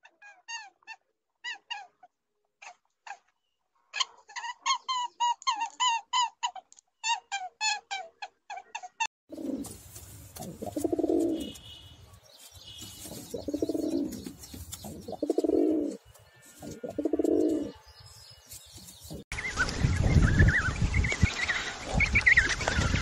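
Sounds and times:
pigeon cooing: 7.1s - 9.8s, 10.4s - 11.6s, 13.0s - 16.0s, 16.6s - 17.8s.

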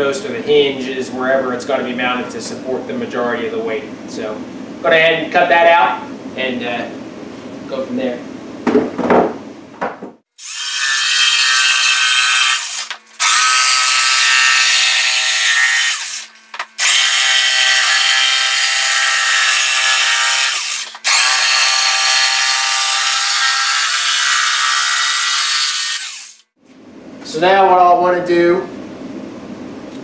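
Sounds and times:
jigsaw cutting plywood: 10.4s - 26.4s.

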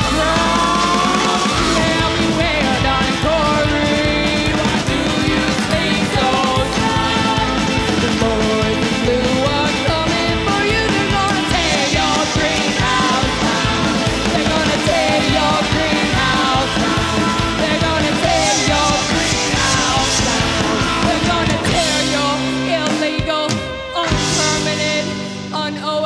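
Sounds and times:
drums: 0.0s - 26.0s
person singing: 0.0s - 26.0s
rock band playing: 0.0s - 26.0s.

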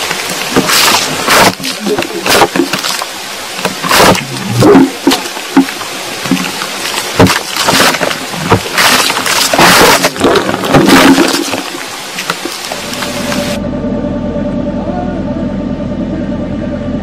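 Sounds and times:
underground rustling and crackling: 0.0s - 13.6s.

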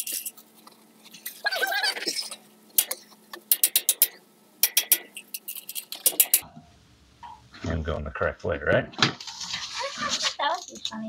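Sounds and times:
metal clicks and taps: 2.8s - 5.2s.

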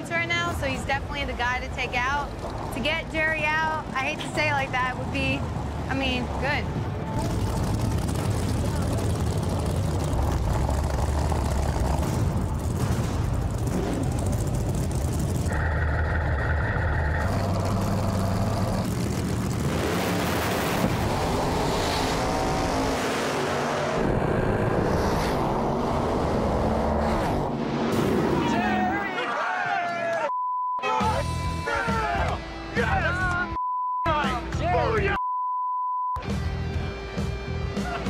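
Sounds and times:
drag racing engines running loudly: 7.1s - 27.3s.

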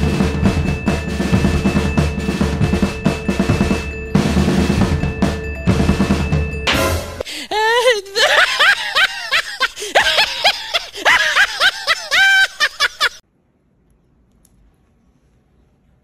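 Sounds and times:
high-pitched comic wailing: 7.4s - 13.2s.

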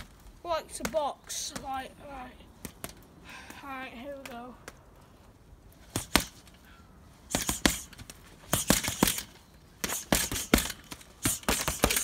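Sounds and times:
punches on heavy punch bag: 7.3s - 7.9s, 8.5s - 9.2s, 9.8s - 12.0s.

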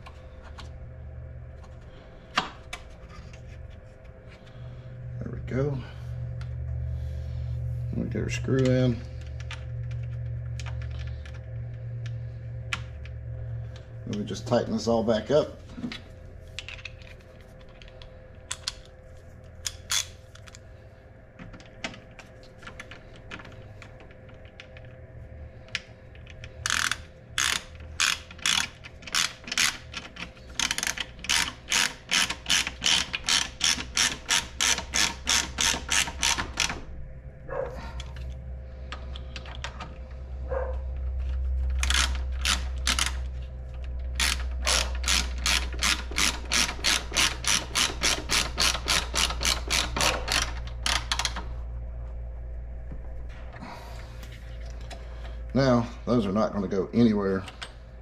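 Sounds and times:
hand ratchet clicking: 26.2s - 36.8s, 41.6s - 51.4s.

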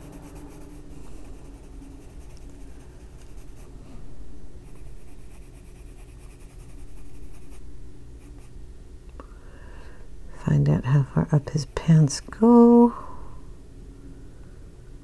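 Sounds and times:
pencil scratching on paper: 0.0s - 3.7s, 4.6s - 7.6s.

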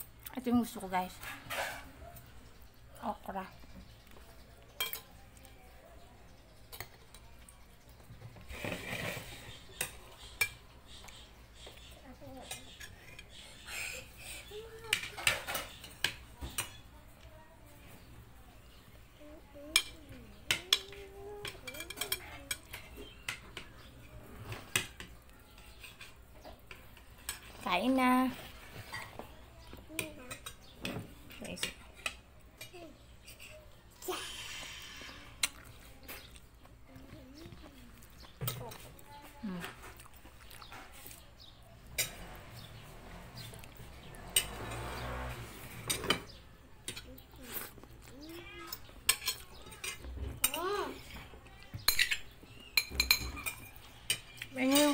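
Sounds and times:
cutlery clinking against dishes: 1.1s - 2.3s, 4.6s - 5.2s, 6.6s - 7.6s, 8.5s - 11.2s, 14.9s - 16.9s, 19.7s - 27.6s, 28.7s - 33.7s, 41.9s - 42.4s, 45.7s - 47.2s, 48.7s - 54.9s.

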